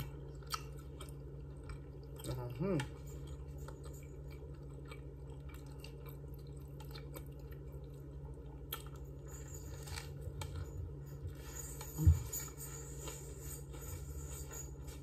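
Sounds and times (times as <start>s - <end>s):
chewing soft sandwich: 0.0s - 15.0s.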